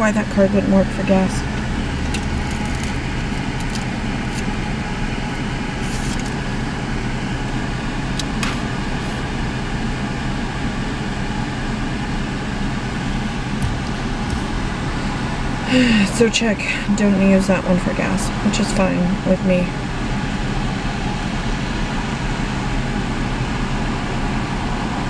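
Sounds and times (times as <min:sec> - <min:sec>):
car engine idling: 0:00.0 - 0:19.0.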